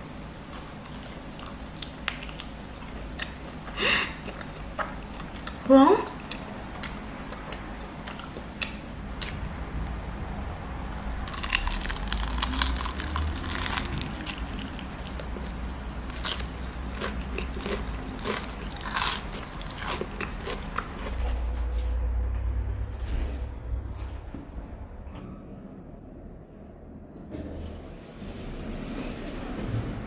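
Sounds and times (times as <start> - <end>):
steady low hum: 0.0 - 30.0
crunchy chewing: 0.5 - 9.4, 10.9 - 21.9.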